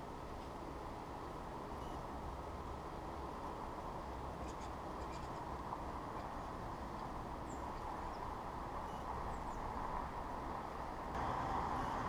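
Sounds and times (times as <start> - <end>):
distant city traffic hum: 0.0 - 12.0
faint bird chirps: 1.8 - 2.1, 4.4 - 5.5, 7.5 - 9.7.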